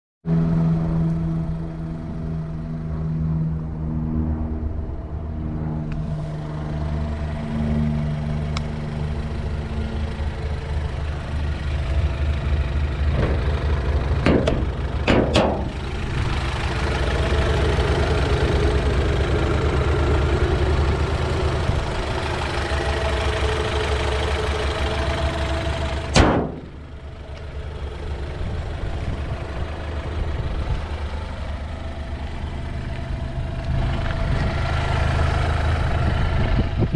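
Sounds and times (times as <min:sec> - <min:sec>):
car engine idling: 0:00.3 - 0:03.9, 0:05.8 - 0:36.9
sharp bang: 0:14.2 - 0:15.8, 0:26.1 - 0:26.8.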